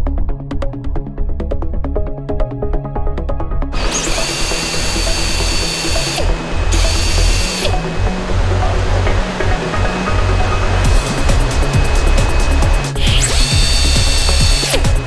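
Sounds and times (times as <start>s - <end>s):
electronic music with steady beat: 0.0s - 15.0s
pneumatic tool hissing whir: 3.8s - 8.0s, 10.6s - 15.0s.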